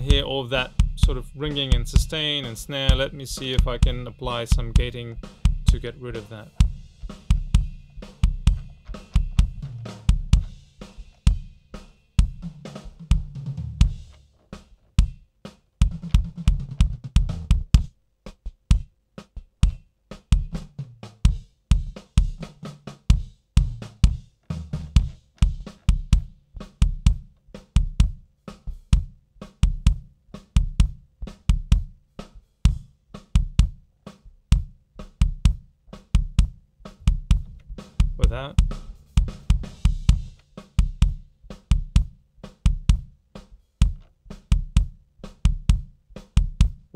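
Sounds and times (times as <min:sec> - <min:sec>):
kick drum hits: 0:06.6 - 0:11.6, 0:15.8 - 0:17.9, 0:23.1 - 0:28.2, 0:28.9 - 0:31.9, 0:32.7 - 0:33.8, 0:34.5 - 0:43.1, 0:43.8 - 0:46.9.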